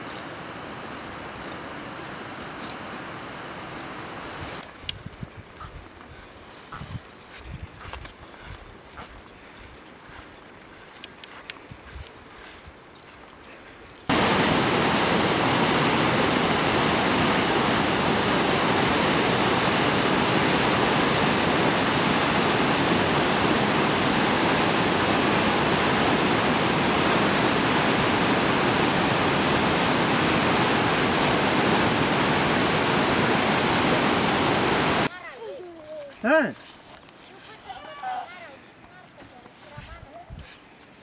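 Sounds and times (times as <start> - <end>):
waterfall rushing over rocks: 14.1 - 35.1.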